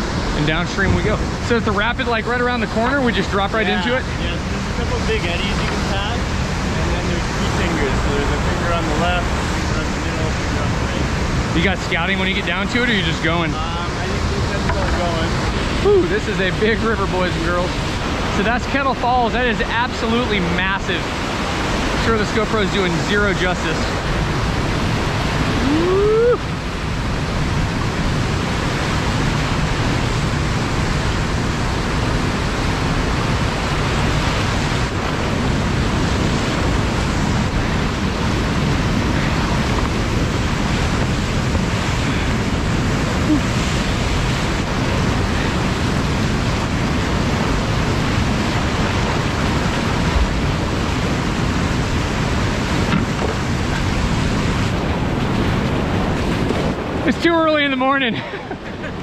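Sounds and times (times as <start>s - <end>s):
whitewater rapid rushing: 0.0s - 59.0s
rising whoop: 25.6s - 26.6s.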